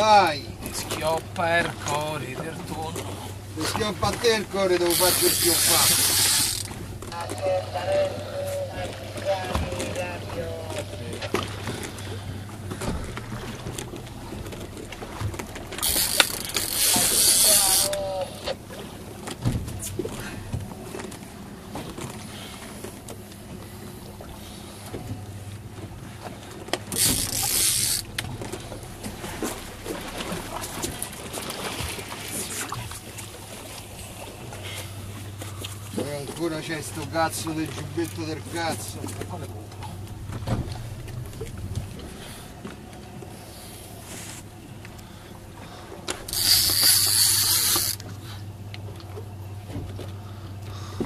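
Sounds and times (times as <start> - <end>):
boat low steady hum: 0.0 - 51.0
fishing reel drag buzzing: 4.8 - 6.8, 15.7 - 18.4, 26.9 - 30.2, 46.2 - 48.4.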